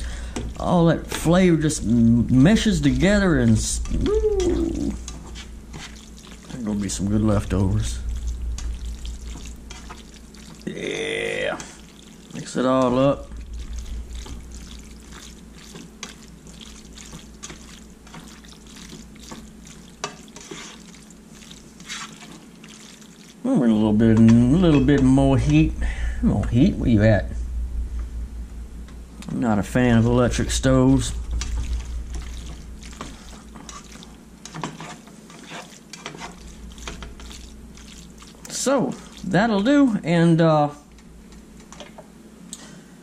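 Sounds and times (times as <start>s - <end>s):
wet sticky squelches of noodles: 2.9s - 6.9s, 8.0s - 10.9s, 11.6s - 23.5s, 31.3s - 39.4s
spatula scraping in frying pan: 4.9s - 7.0s, 8.5s - 10.7s, 13.4s - 25.7s, 31.3s - 39.4s.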